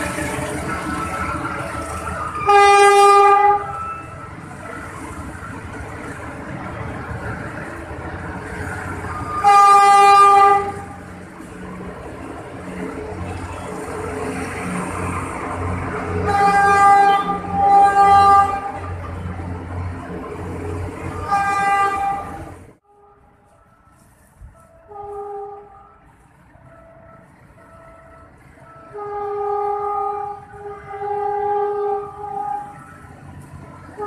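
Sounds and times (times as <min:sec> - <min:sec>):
low train rumble: 0:00.0 - 0:34.0
locomotive horn blasts: 0:02.2 - 0:04.2, 0:09.2 - 0:11.0, 0:16.2 - 0:18.9, 0:21.1 - 0:23.8, 0:24.6 - 0:26.0, 0:28.7 - 0:32.9.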